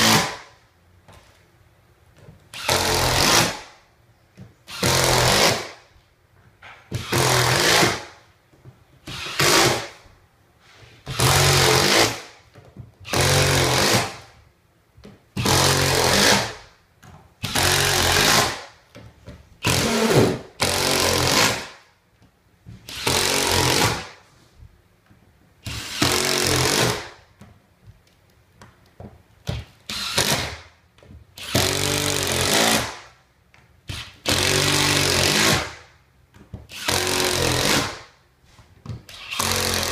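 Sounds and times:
impact driver driving screws: 0:25.6 - 0:27.1, 0:31.4 - 0:33.0, 0:36.7 - 0:38.0, 0:39.1 - 0:39.9.

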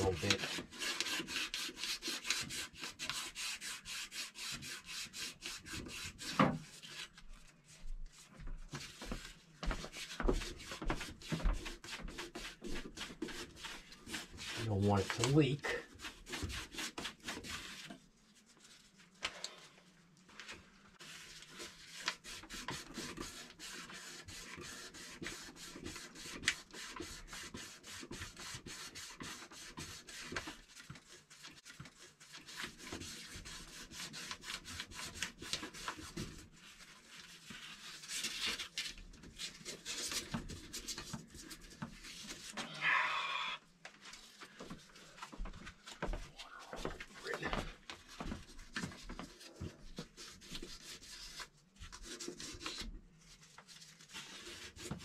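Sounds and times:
sanding copper pipe: 0:00.0 - 0:07.1, 0:08.8 - 0:18.0, 0:21.0 - 0:38.7, 0:48.0 - 0:55.0
scrape on pipe: 0:00.0 - 0:07.1.

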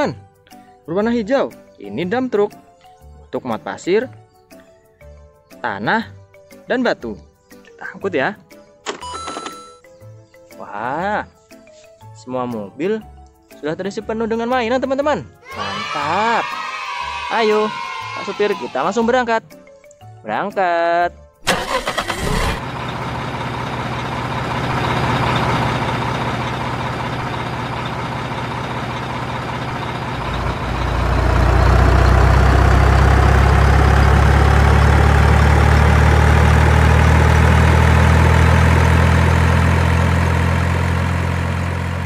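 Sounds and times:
truck engine rumbling: 0:21.4 - 0:42.0.

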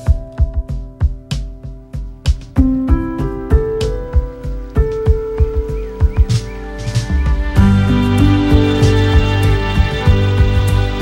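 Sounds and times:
steady drum beat: 0:00.0 - 0:11.0
sustained keyboard notes: 0:00.0 - 0:11.0.

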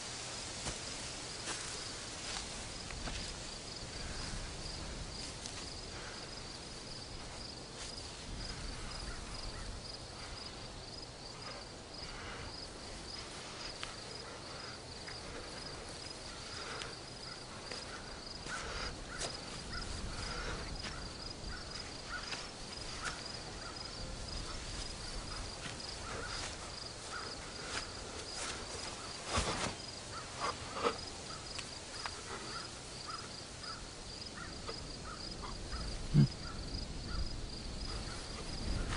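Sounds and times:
crickets chirping: 0:00.0 - 0:38.9.

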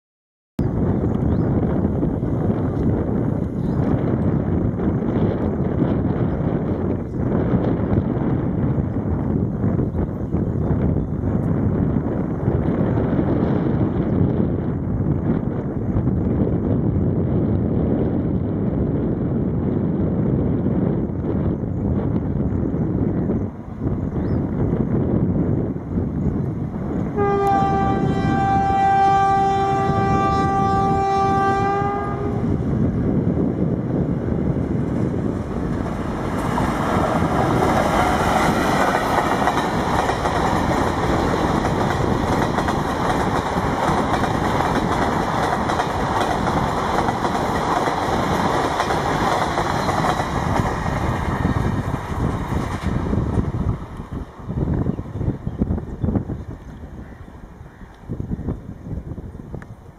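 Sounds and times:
train wheels on rails: 0:25.8 - 0:56.9
train horn hooting: 0:27.1 - 0:32.6.

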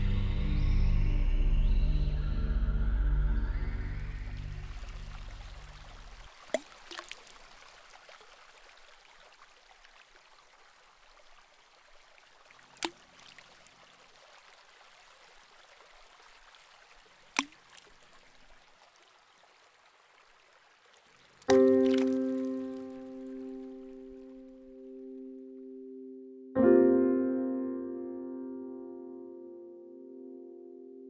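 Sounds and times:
music: 0:00.0 - 0:05.6, 0:21.5 - 0:24.2, 0:24.8 - 0:31.0
fountain water rushing: 0:03.7 - 0:24.3.

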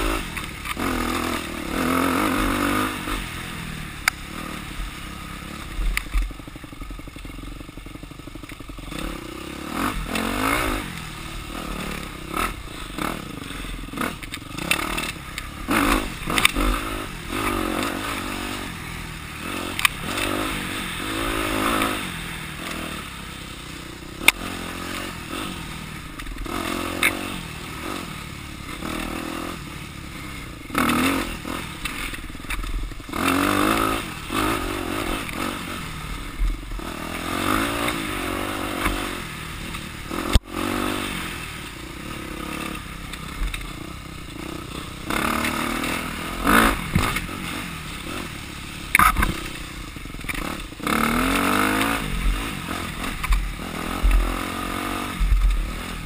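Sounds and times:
bike rattling over rough ground: 0:00.0 - 0:56.0
dirt bike engine revving: 0:00.0 - 0:56.0
sharp crack: 0:19.6 - 0:22.0, 0:45.0 - 0:54.3.

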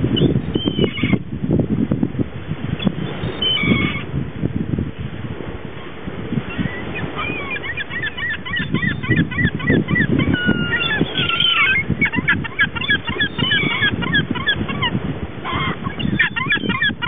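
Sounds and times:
seagulls calling: 0:00.2 - 0:01.2, 0:02.8 - 0:04.1, 0:06.4 - 0:17.0.

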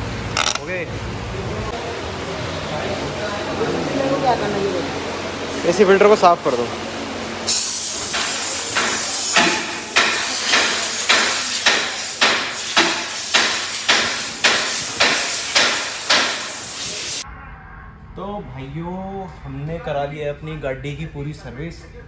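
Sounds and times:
compressed air blow gun hissing: 0:11.2 - 0:17.2.

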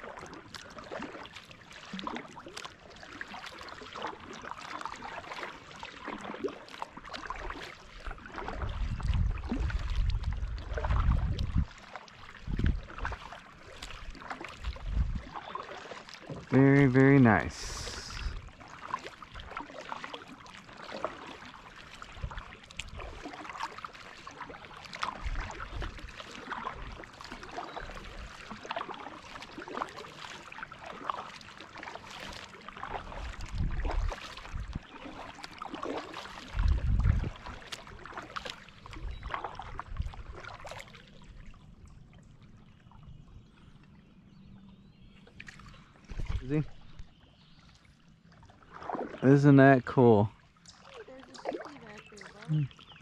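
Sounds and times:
kayak paddle strokes in water: 0:00.0 - 0:42.7, 0:45.1 - 0:53.0
water drips and small splashes: 0:00.0 - 0:53.0.

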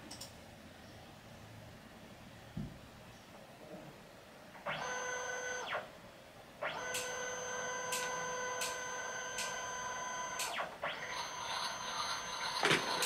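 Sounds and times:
printer motor whine: 0:04.7 - 0:05.9, 0:06.6 - 0:13.0.

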